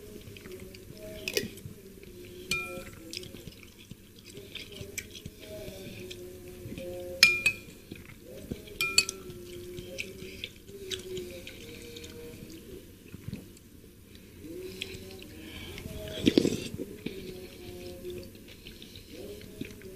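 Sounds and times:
wet eating sounds: 0.0 - 19.9
spoon clinking on ceramic bowl: 2.5 - 3.0, 7.2 - 7.8, 8.8 - 9.4.

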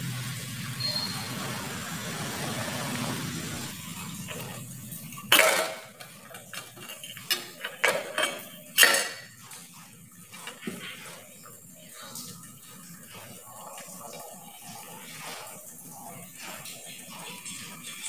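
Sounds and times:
metal plate clanking: 5.3 - 9.3.

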